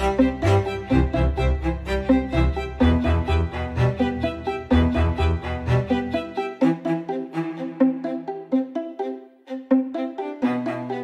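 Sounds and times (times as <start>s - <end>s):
instrumental music with pulsing bass: 0.0s - 8.6s.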